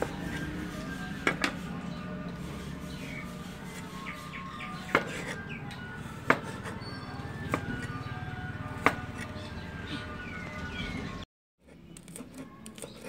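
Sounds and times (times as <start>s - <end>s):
knife chopping on wooden board: 1.2s - 1.6s, 4.8s - 5.4s, 6.2s - 6.8s, 7.4s - 7.9s, 8.8s - 9.3s.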